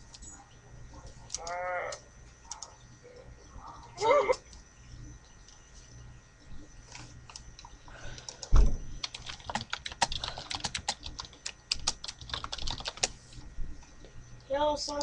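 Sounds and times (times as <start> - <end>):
laptop keyboard typing: 1.3 - 2.8, 7.3 - 13.2.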